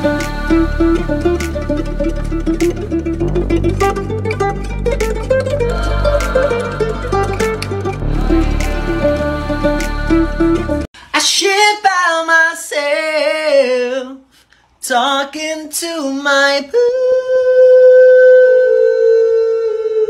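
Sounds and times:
person singing wavering phrases: 0.0s - 2.2s, 5.6s - 20.0s
background music: 0.0s - 10.9s.

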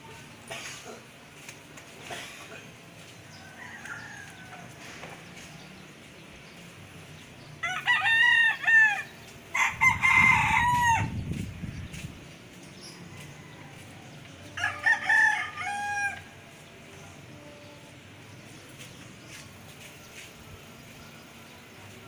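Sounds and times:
rooster crowing: 3.3s - 5.0s, 7.6s - 11.2s, 13.0s - 16.4s.

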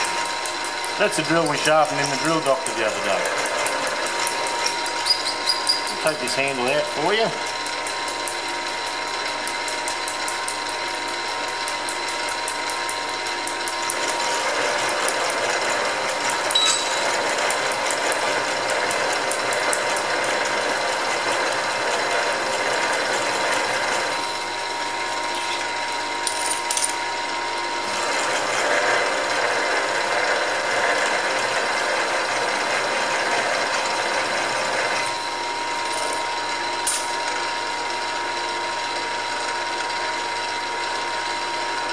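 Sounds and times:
gear whine: 0.0s - 31.0s
drill cutting metal: 0.0s - 39.9s.

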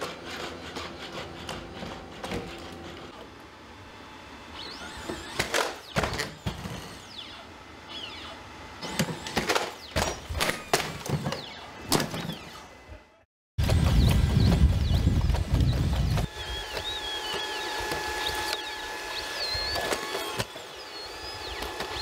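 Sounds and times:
short squeaks: 4.6s - 12.8s.

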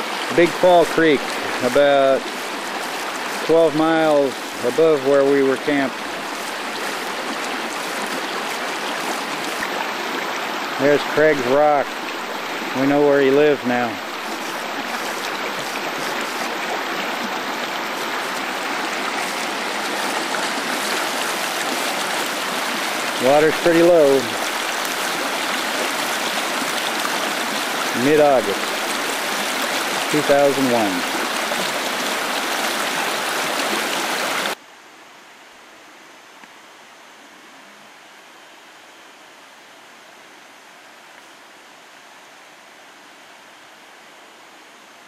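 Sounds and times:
creek water rushing over rocks: 0.0s - 34.6s
faint steady hiss: 0.0s - 45.0s.

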